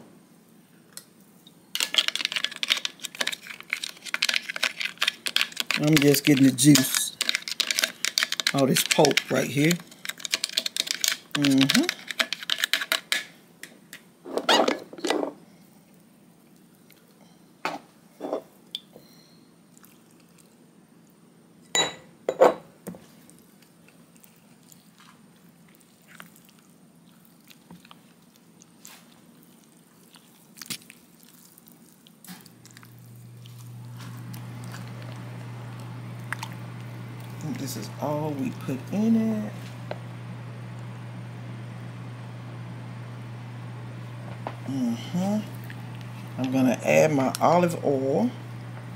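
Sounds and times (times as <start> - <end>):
utensils clicking and knocking: 1.8 - 13.3
steady low hum: 32.6 - 48.9.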